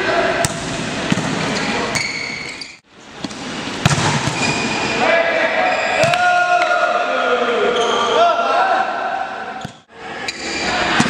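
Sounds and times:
short high shoe squeaks: 1.6s - 2.8s.

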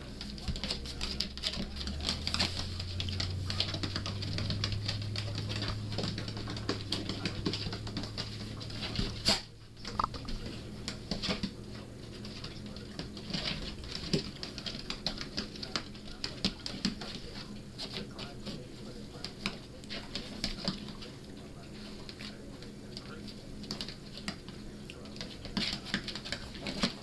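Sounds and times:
claws and hooves on hardwood floor: 0.0s - 27.0s
steady low hum: 0.0s - 27.0s.

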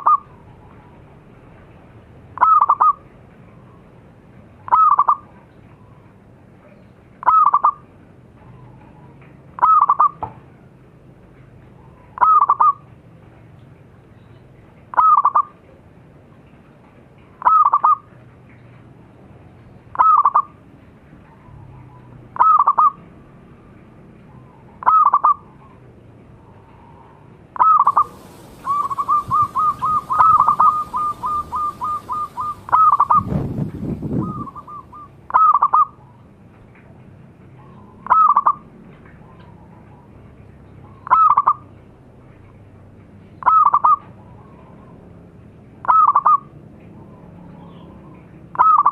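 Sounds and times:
dove cooing: 8.5s - 10.2s, 27.6s - 36.1s.

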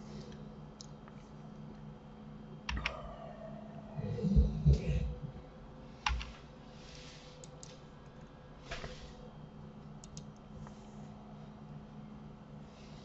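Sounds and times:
faint steady hum: 0.0s - 13.0s
keyboard and mouse clicks: 2.7s - 3.0s, 6.0s - 6.4s, 10.0s - 10.4s.

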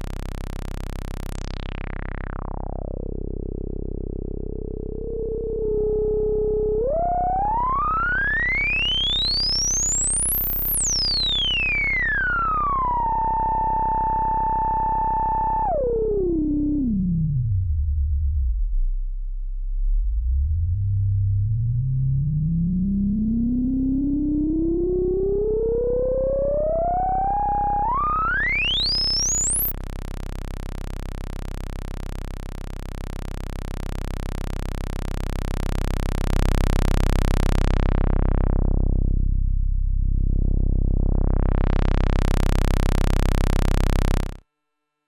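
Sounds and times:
buzzy synthesizer tone filter sweep: 0.0s - 44.4s
synthesizer tone gliding up: 4.8s - 13.6s, 19.9s - 31.1s.

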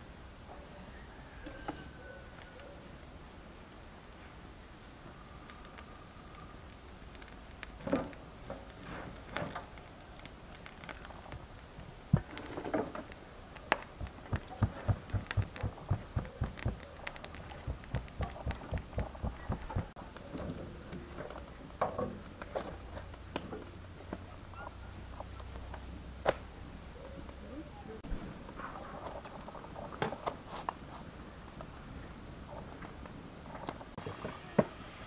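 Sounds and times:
hands patting dough: 13.6s - 20.0s.

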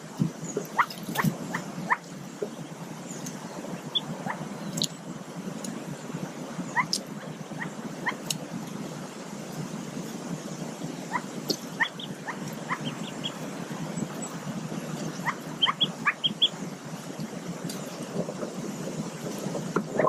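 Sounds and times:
ducklings peeping: 0.2s - 8.8s, 9.6s - 18.1s.

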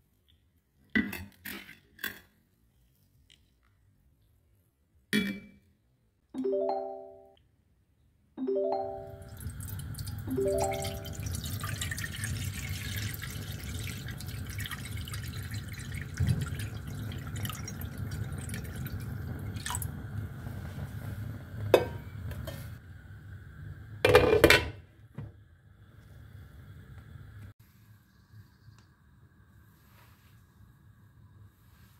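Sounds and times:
water pouring into a pan: 9.3s - 20.1s.

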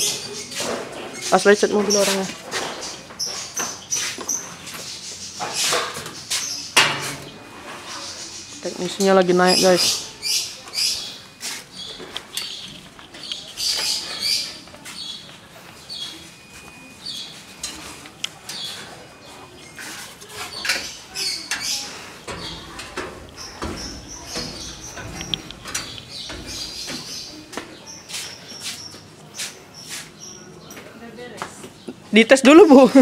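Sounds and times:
high-pitched chirps and squeaks: 0.0s - 30.6s
footsteps climbing stairs: 19.8s - 28.8s.

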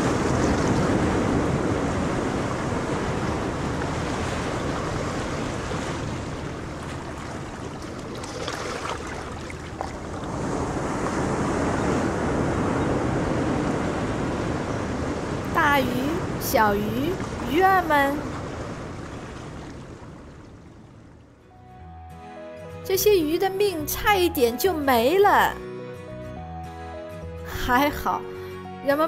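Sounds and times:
wind buffeting microphone: 0.0s - 21.3s
rushing water: 0.0s - 21.5s
splashing or rustling: 5.9s - 10.4s.

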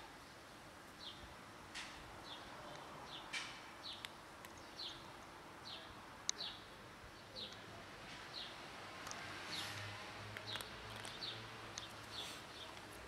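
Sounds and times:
cats crunching dry kibble: 10.3s - 11.2s.

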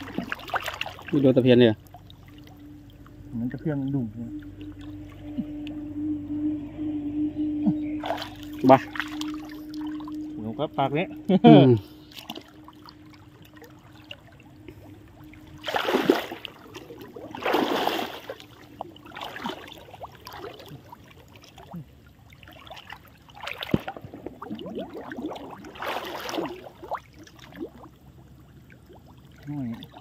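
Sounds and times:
shallow water splashing: 0.0s - 7.0s, 7.9s - 30.0s.

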